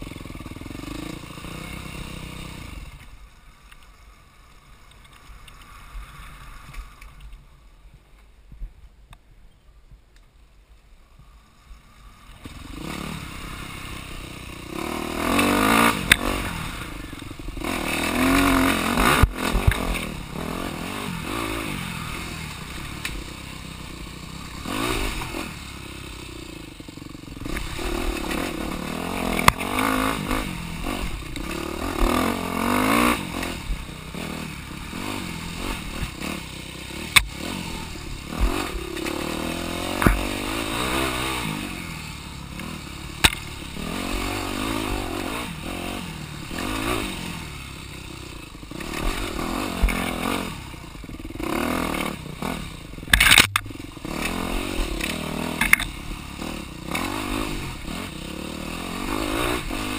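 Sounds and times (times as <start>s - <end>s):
dirt bike engine revving: 0.0s - 3.0s, 11.9s - 59.9s
bike knocks and clatters: 39.9s - 40.4s.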